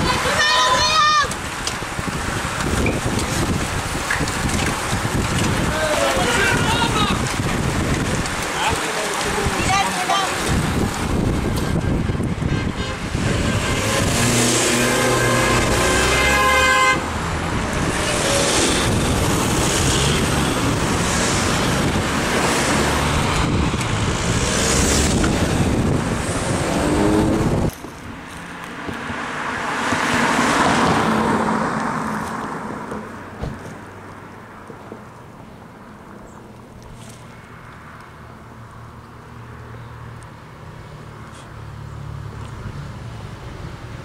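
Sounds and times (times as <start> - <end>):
cars passing close: 0.0 - 44.0
distant vehicle passing: 13.0 - 27.7.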